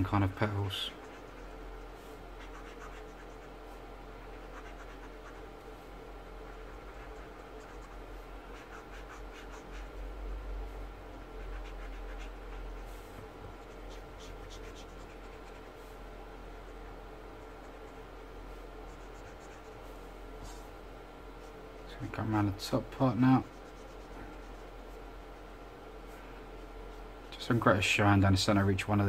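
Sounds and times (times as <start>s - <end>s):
steady low hum: 0.0s - 29.0s
marker rubbing on paper: 0.5s - 16.0s, 16.6s - 20.7s, 23.0s - 25.5s.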